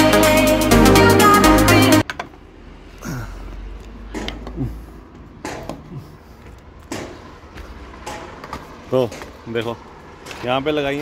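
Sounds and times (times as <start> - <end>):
knocks on ladder rungs: 8.0 - 9.7.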